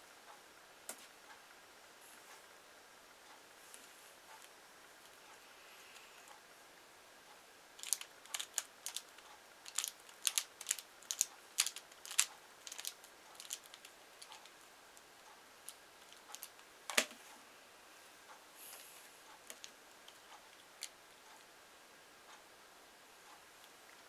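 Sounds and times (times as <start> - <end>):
puzzle cube twisting clicks: 7.8 - 14.5.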